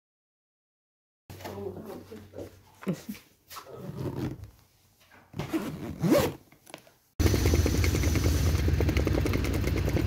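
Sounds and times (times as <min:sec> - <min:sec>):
suitcase zipper being pulled: 0:03.8 - 0:04.5, 0:05.4 - 0:06.4.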